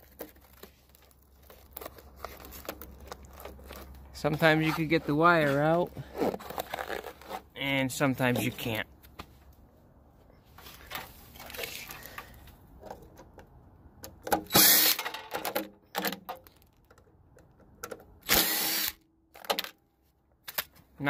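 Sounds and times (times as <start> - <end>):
scraping and handling noise: 0.0 - 14.4
power tool motor bursts: 14.5 - 15.0, 18.2 - 19.0.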